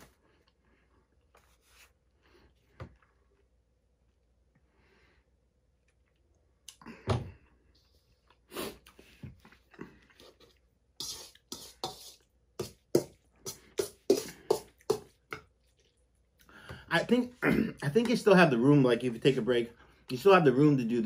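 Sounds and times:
metal spoon scraping bowl: 11.0s - 12.7s.

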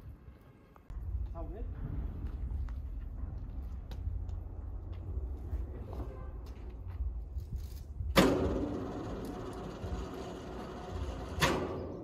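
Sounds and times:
sharp bang: 8.1s - 9.1s
sawmill machinery rumble: 8.2s - 11.8s.

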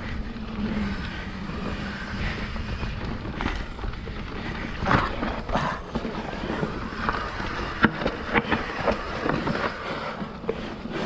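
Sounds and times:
wind on microphone: 0.0s - 10.9s
bike tyres rumbling on dirt: 0.0s - 11.0s.

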